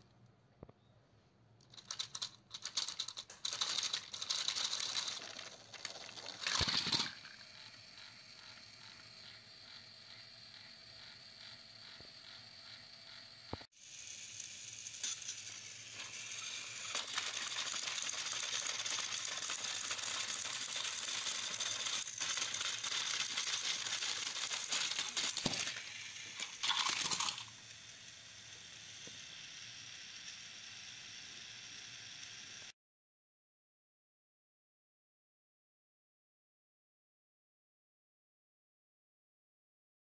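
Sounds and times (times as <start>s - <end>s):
plastic clatter: 1.6s - 7.2s, 21.8s - 25.8s
toy train motors whirring: 1.6s - 32.8s
plastic wheels grinding on track: 1.7s - 9.9s, 14.0s - 27.6s.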